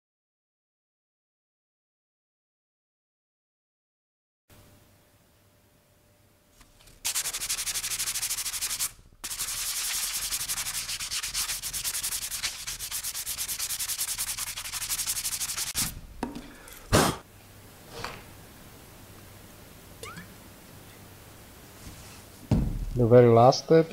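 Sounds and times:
sandpaper rubbing on wood: 7.0 - 16.0.

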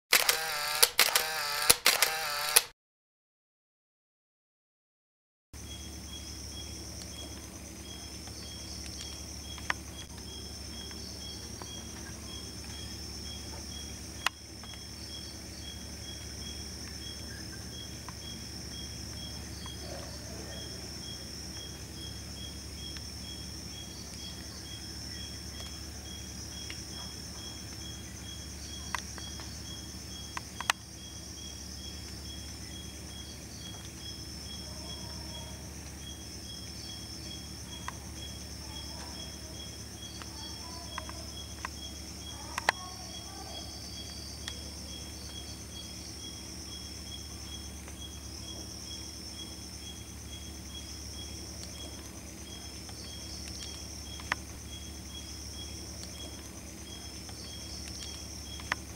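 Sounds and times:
crickets trilling: 0.1 - 2.6, 5.6 - 58.9
sharp clicks: 0.1 - 2.7, 52.9 - 54.4, 57.2 - 58.8
insect chirping in even beat: 5.6 - 58.9.

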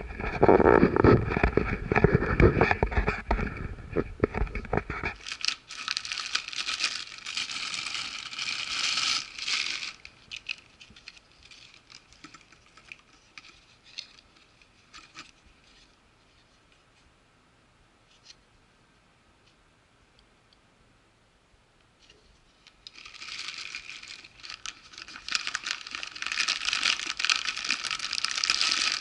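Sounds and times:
plastic packaging crinkling: 4.2 - 15.9, 22.6 - 29.0.

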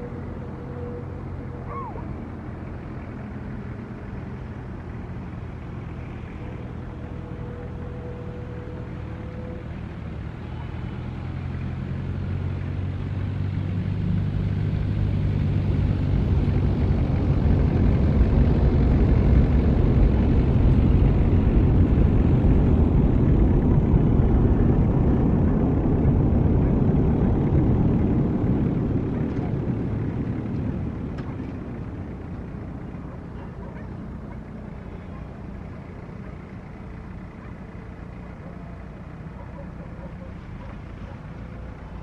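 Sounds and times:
airplane passing overhead: 0.0 - 42.0
steady low hum: 14.0 - 42.0.

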